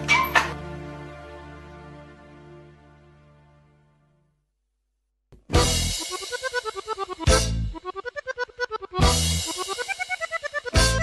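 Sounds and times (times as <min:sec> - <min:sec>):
background music hits and chord: 0:00.0 - 0:04.2.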